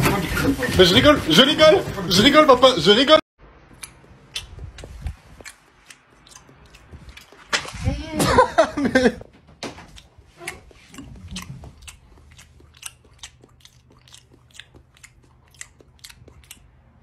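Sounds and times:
person chewing crunchy food: 3.7s - 7.8s, 9.8s - 17.0s.

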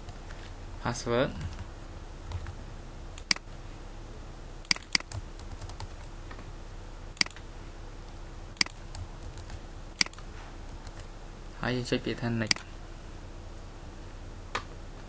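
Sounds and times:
mouse clicks: 3.2s - 3.4s, 4.7s - 5.2s, 7.2s - 7.4s, 8.6s - 8.8s, 10.0s - 10.2s.

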